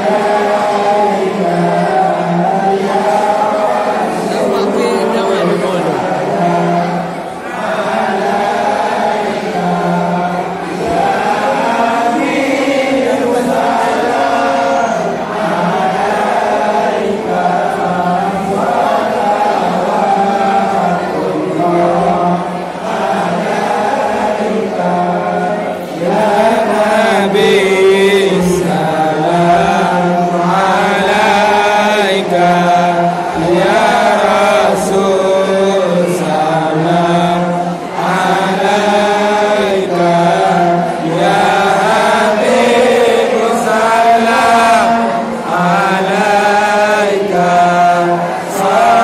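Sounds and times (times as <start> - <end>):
men chanting in unison: 0.0 - 49.0.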